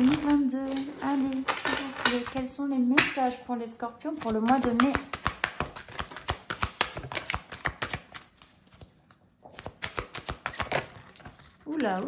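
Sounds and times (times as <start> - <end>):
cards being shuffled: 4.1 - 12.0.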